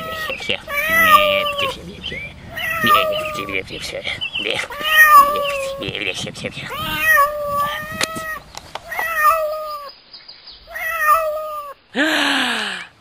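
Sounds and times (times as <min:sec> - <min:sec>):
animal whining: 0:00.0 - 0:03.7, 0:04.6 - 0:06.0, 0:06.7 - 0:09.9, 0:10.7 - 0:11.8.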